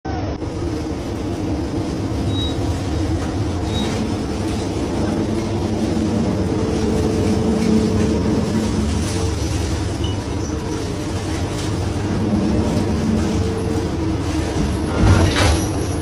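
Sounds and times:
boat engine droning: 0.2s - 16.0s.

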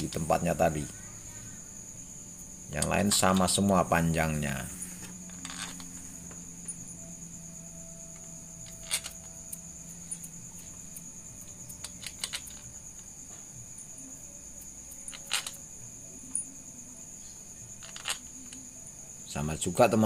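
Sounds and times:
steady high-pitched trill: 0.0s - 12.1s.

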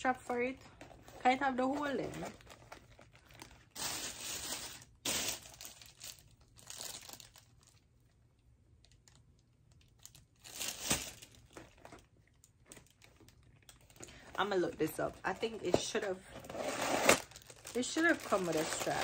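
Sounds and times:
paper and plastic crinkling: 0.8s - 7.8s, 8.8s - 19.0s.

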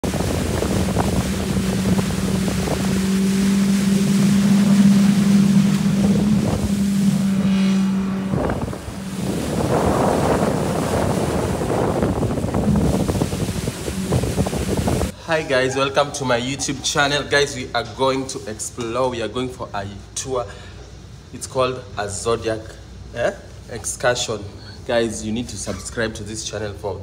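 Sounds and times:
wind on microphone: 0.0s - 15.2s
outboard motor running: 0.0s - 17.3s
water rushing: 0.0s - 19.6s.

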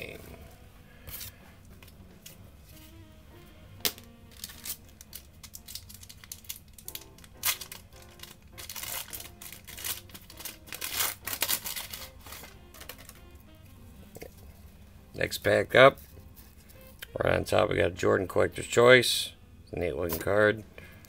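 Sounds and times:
foil wrapper crinkling and tearing: 3.8s - 13.4s.

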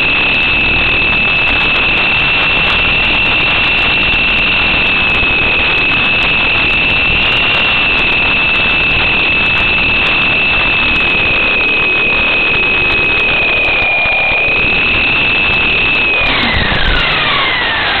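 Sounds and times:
electric motors and gears whining: 0.0s - 18.0s
rotor wash rushing: 15.4s - 18.0s.

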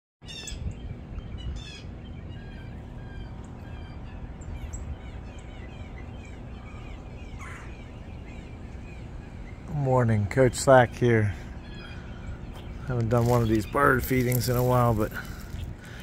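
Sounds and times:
songbirds singing and chirping: 0.2s - 16.0s.

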